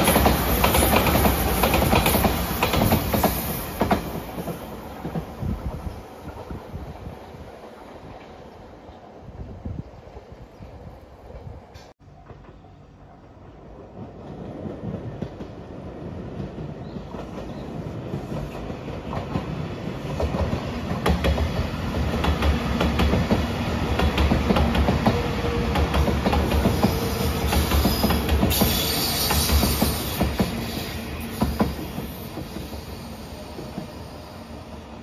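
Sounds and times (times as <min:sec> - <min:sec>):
train wheels clattering over rail joints: 0:00.0 - 0:06.6
electric train passing: 0:00.0 - 0:35.0.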